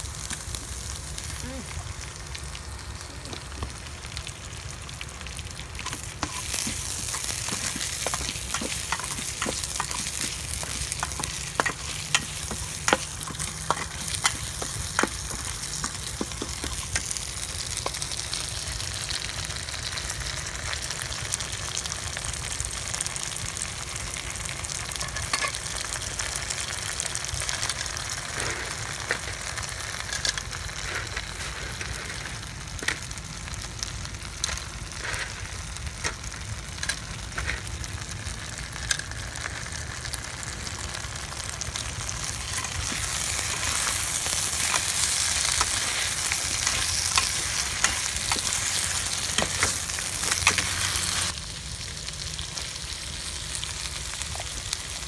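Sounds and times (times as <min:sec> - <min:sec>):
paste sizzling in a pan: 0:00.0 - 0:55.0
metal spatula scraping a pan: 0:05.8 - 0:18.0, 0:28.2 - 0:33.0, 0:42.5 - 0:51.3.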